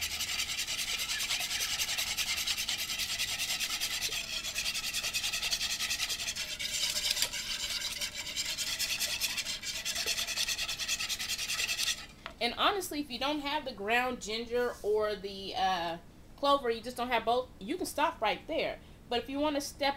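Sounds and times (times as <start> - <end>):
whisk scraping a bowl: 0.0 - 12.2.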